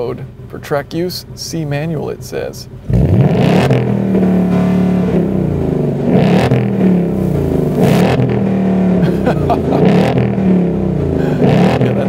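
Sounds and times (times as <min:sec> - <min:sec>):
car engine revving and idling: 0:00.0 - 0:12.0.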